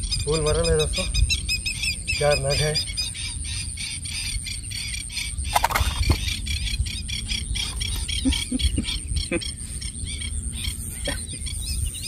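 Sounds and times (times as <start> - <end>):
low wind rumble: 0.0 - 12.0
small birds chirping: 0.0 - 12.0.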